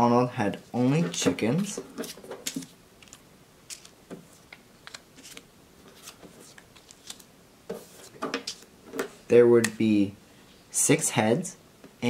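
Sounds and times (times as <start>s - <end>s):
paper rustling: 1.0s - 9.2s.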